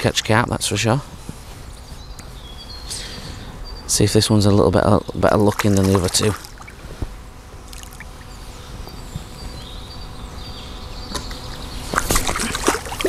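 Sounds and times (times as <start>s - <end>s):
faint high whine: 0.0s - 13.0s
low outdoor background: 0.0s - 13.0s
fish splashing in water: 5.4s - 6.8s, 7.7s - 8.3s, 11.9s - 13.0s.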